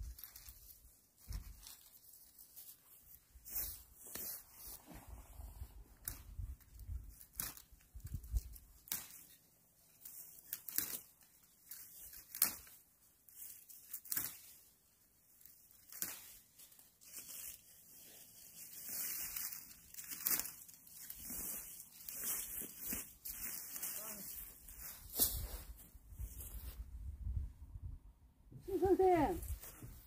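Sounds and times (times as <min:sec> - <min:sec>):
twigs snapping and crunching: 0:00.0 - 0:04.4, 0:06.0 - 0:14.7, 0:15.3 - 0:24.5.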